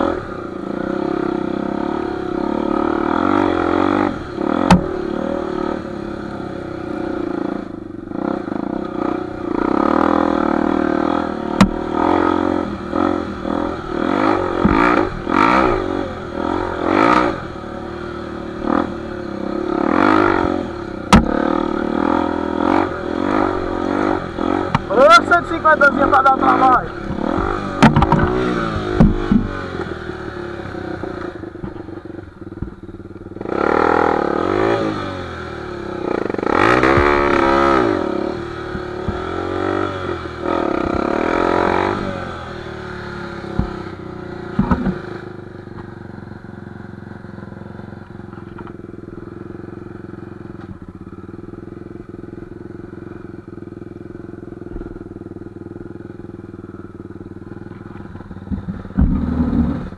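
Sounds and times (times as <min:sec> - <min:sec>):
dirt bike engine revving and idling: 0:00.0 - 0:59.9.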